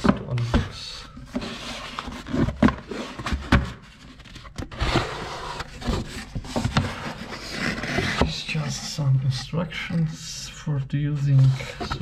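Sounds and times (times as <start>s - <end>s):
cardboard scraping and rubbing: 1.3s - 9.4s, 11.2s - 12.0s.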